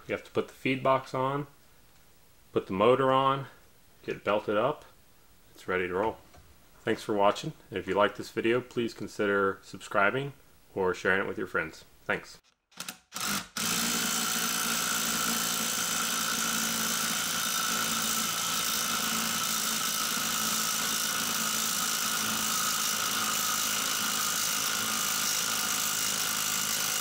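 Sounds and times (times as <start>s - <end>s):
cordless drill motor whine: 12.8s - 27.0s.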